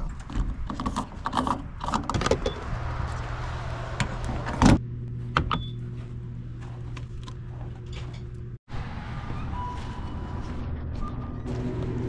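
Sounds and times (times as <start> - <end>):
steady low hum: 3.5 - 8.6.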